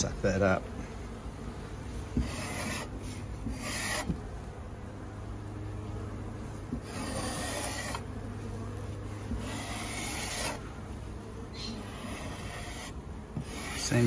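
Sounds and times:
putty knife scraping wood: 2.2s - 4.2s, 6.7s - 8.0s, 9.3s - 10.6s, 11.7s - 14.0s.

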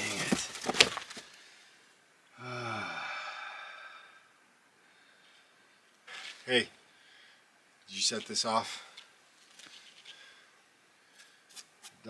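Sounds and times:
stones knocking together: 0.0s - 1.2s
man sighing: 2.3s - 4.2s.

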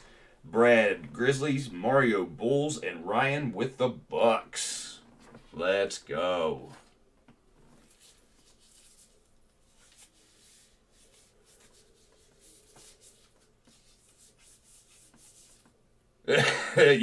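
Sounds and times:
faint scratching and rustling: 4.8s - 5.7s, 6.6s - 15.9s.

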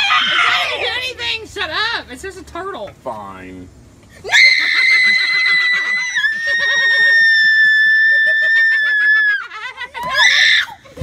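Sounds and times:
woman screaming: 0.0s - 0.9s, 4.2s - 10.8s
people laughing: 4.4s - 10.3s.

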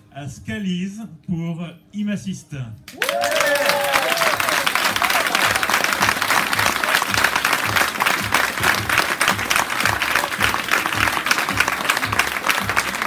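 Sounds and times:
people applauding: 2.9s - 13.0s
music with low beat: 5.4s - 13.0s.

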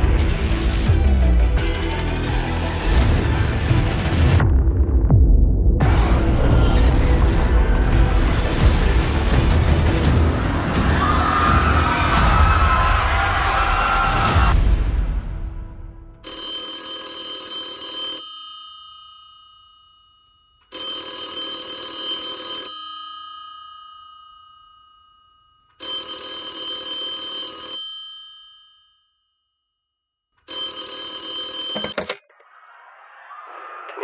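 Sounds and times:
telephone bell ringing: 16.2s - 29.1s, 30.4s - 32.2s.

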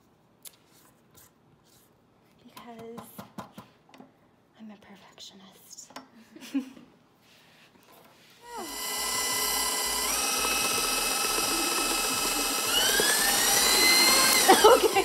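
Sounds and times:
stand mixer motor whining: 8.5s - 15.0s.

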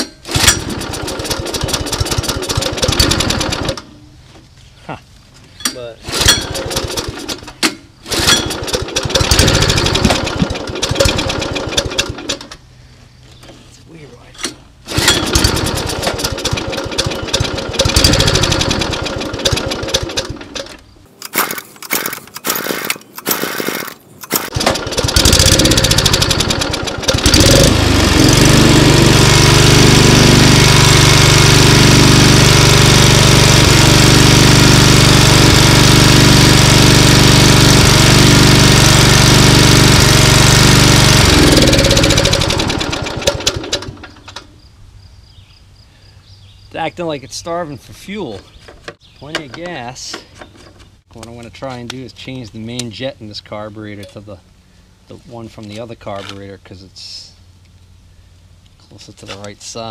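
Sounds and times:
lawnmower engine running ragged: 0.0s - 3.9s, 6.0s - 12.5s, 14.9s - 44.4s.

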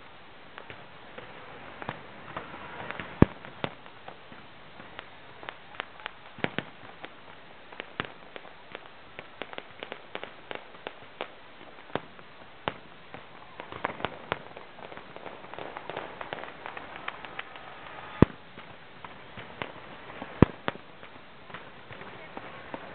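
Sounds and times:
sharp gunshot bangs and pops: 1.8s - 4.3s, 4.9s - 7.2s, 11.9s - 20.9s.

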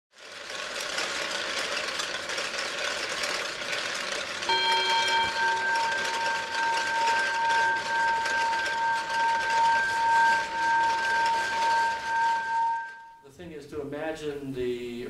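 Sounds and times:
steady rattling: 0.2s - 13.0s
metal bell ringing: 4.4s - 13.2s.

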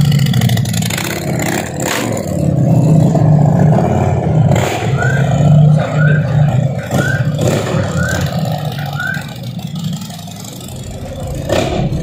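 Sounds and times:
motorcycle engine riding off: 0.0s - 12.0s.

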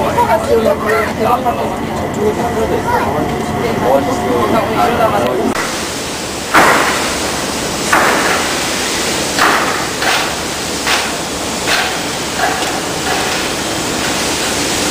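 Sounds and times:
sharp knocks: 6.5s - 7.1s, 7.9s - 8.5s, 9.4s - 13.5s.

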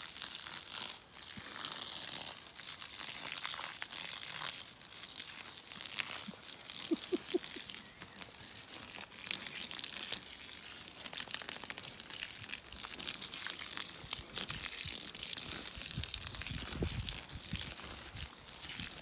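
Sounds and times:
spray ticking on leaves: 0.0s - 19.0s
hose water spraying hiss: 4.5s - 9.1s.

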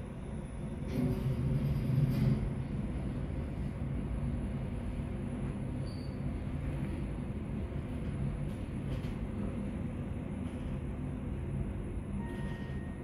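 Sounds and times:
elevator rumble and hum: 0.0s - 13.0s.

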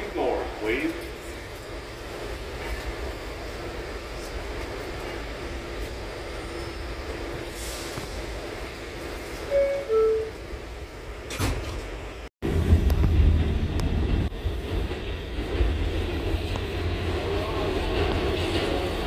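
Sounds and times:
subway car humming: 0.0s - 19.0s
train rumble: 0.0s - 19.0s.

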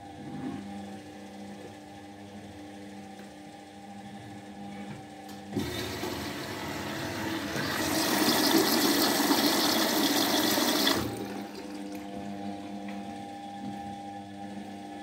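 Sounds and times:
washing machine hum: 4.0s - 15.0s.

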